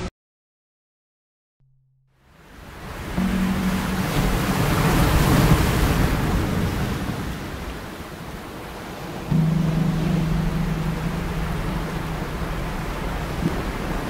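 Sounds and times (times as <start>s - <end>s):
water washing against rocks: 3.0s - 7.9s, 8.8s - 14.0s
steady low drone: 3.2s - 6.3s, 9.3s - 14.0s.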